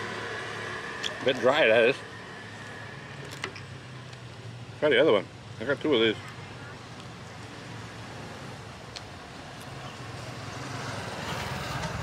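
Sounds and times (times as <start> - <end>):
street traffic noise: 0.0 - 12.0.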